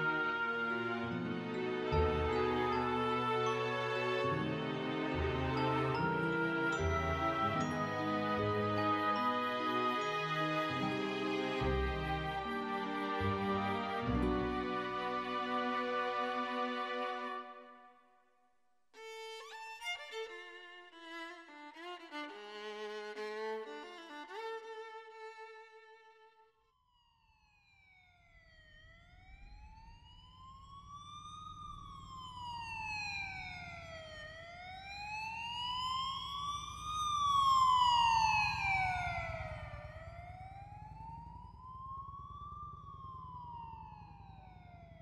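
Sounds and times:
emergency vehicle siren wailing: 0.0s - 17.8s, 27.1s - 45.0s.

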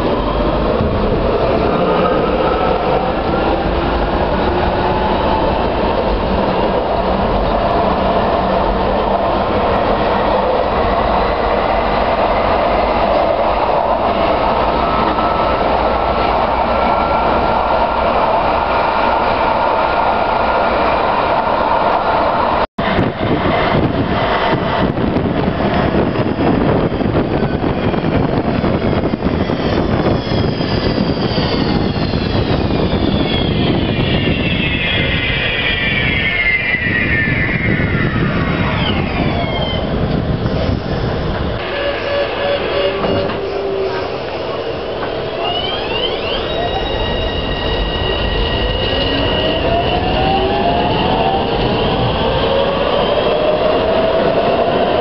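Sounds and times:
tram motor whine falling in pitch: 26.5s - 55.0s
tram traction motor electric tones: 41.6s - 55.0s.

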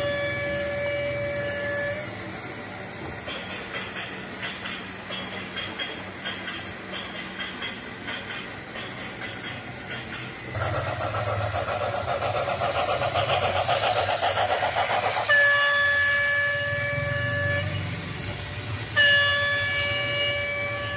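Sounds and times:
toy train motor hum: 0.0s - 20.9s
electronic pulsing warble: 10.5s - 15.7s
electronic horn tone: 15.3s - 17.9s.

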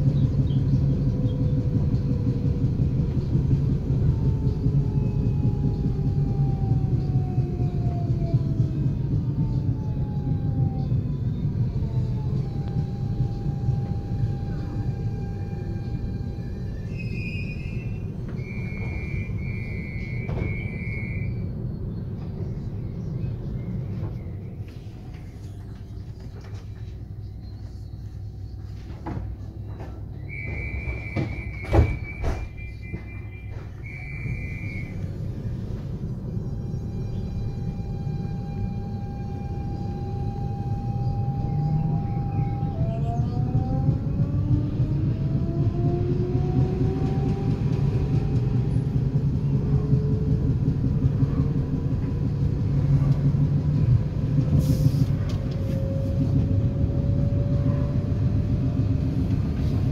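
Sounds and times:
train rumbling: 0.0s - 59.9s
electronic door warning tone: 12.4s - 21.4s, 30.3s - 35.0s
sliding doors thudding shut: 29.0s - 33.8s.

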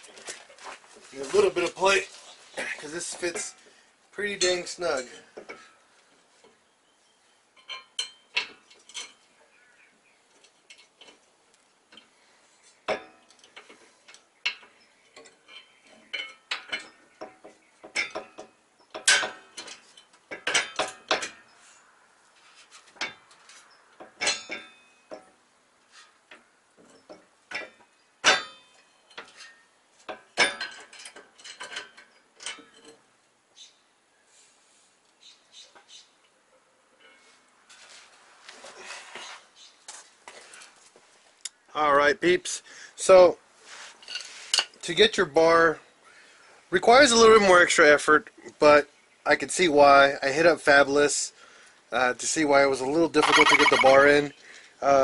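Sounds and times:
metal tools clinking: 7.6s - 9.2s, 53.2s - 54.2s.

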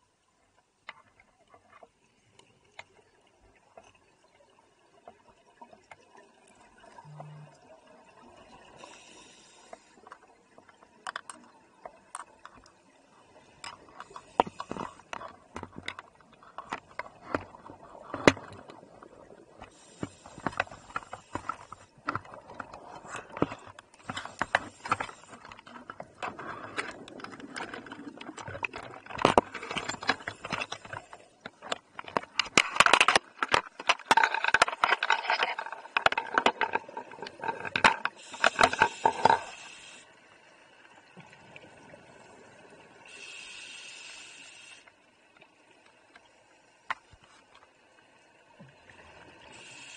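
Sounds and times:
underwater clicks and knocks: 9.7s - 12.8s, 13.6s - 39.5s.

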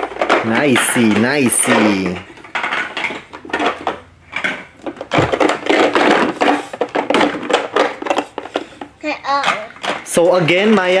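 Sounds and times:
plastic parts knocking and rattling: 0.0s - 11.0s
dull thump: 5.1s - 6.3s.

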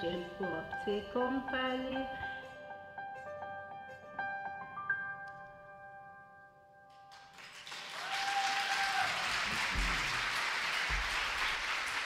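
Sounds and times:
piano notes ringing: 0.0s - 7.2s
audience applause: 7.1s - 12.0s.

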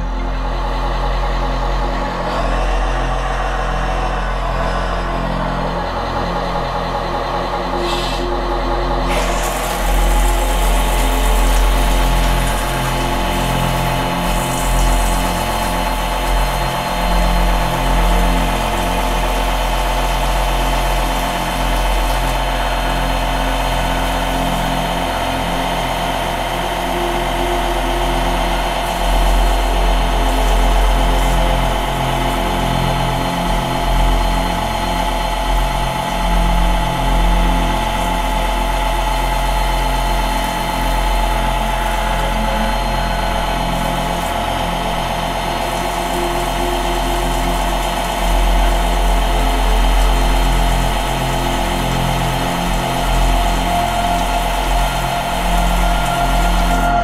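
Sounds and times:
simulated diesel engine idling: 0.0s - 57.0s.

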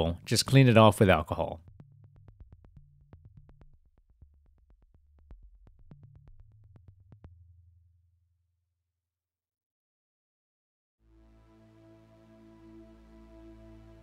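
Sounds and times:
faint synthesizer music: 11.0s - 14.0s.

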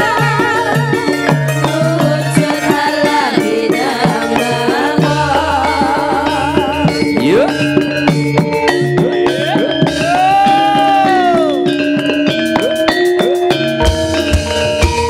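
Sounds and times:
women singing with wide vibrato: 0.0s - 7.1s
hand drum strokes: 0.0s - 15.0s
low metallophone notes: 0.0s - 15.0s.

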